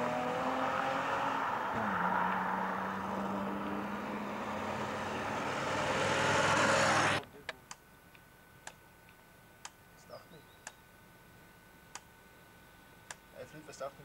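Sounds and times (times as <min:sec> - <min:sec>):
motorcycle engine approaching: 0:00.0 - 0:07.2
street traffic: 0:00.0 - 0:07.4.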